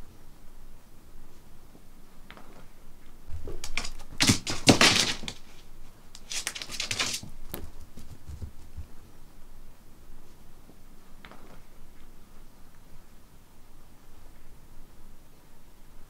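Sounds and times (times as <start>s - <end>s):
dog claws clicking on floor: 3.5s - 5.6s, 6.2s - 8.7s.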